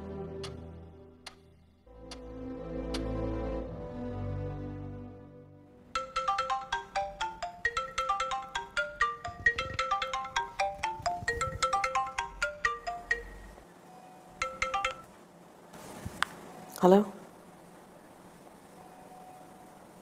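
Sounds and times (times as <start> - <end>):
mobile phone ringtone: 5.9 - 15.1.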